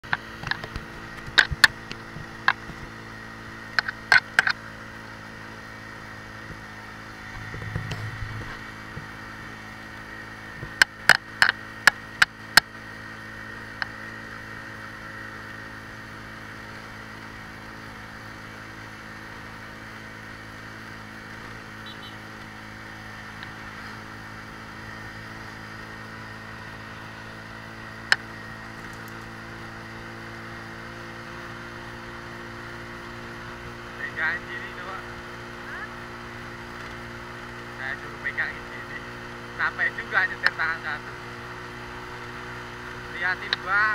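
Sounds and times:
motorcycle engine running: 0:00.0 - 0:43.9
sharp clicks and knocks: 0:00.1 - 0:02.9, 0:03.7 - 0:04.6, 0:07.3 - 0:09.1, 0:10.6 - 0:12.7.

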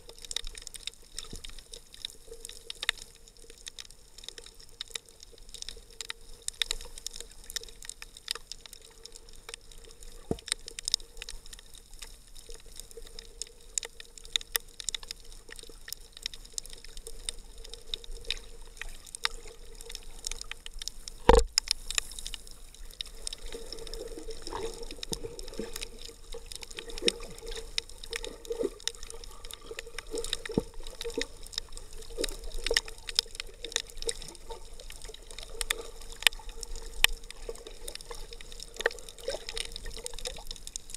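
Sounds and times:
faint steady hum: 0:00.0 - 0:40.9
sharp clicks and crackles: 0:00.0 - 0:40.9
underwater water sounds: 0:00.0 - 0:40.9
bubbling gurgling: 0:22.7 - 0:40.9.

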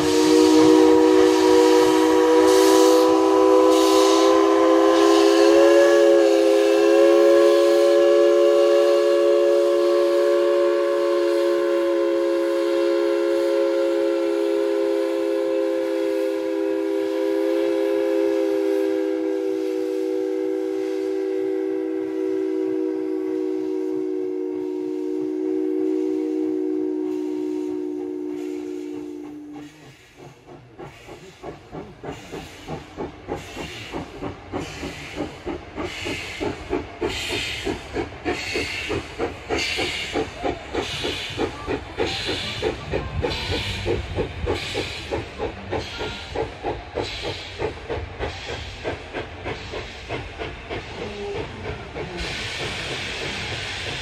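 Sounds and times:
steam locomotive chime whistle: 0:00.0 - 0:30.4, 0:37.1 - 0:47.6
steam hissing: 0:00.0 - 0:54.0.

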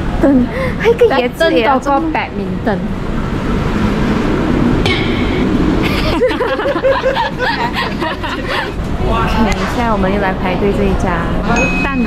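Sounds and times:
traffic hum: 0:00.0 - 0:12.0
rapid repeated laughter: 0:05.8 - 0:08.8.

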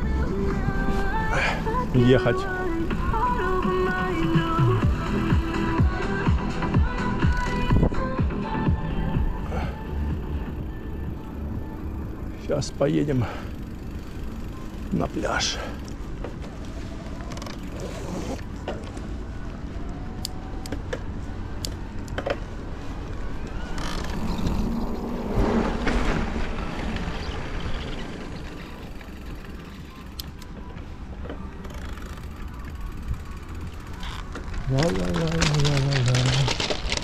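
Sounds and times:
bike clicks and rattles: 0:00.0 - 0:08.3, 0:10.4 - 0:37.0
bicycle tyre rumble: 0:00.0 - 0:37.0.

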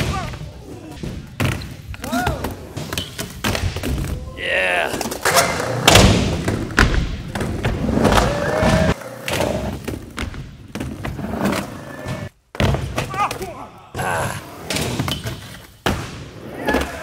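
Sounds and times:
skateboard wheels rolling on concrete: 0:04.9 - 0:12.4.

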